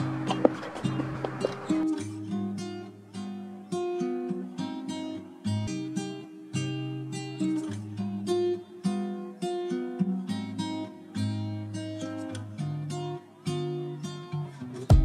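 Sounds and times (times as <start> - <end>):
acoustic guitar picking: 0.0 - 15.0.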